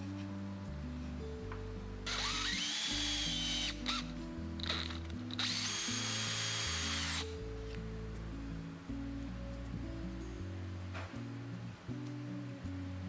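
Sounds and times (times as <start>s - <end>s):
background music: 0.0s - 13.0s
power drill boring into plywood: 2.1s - 7.3s.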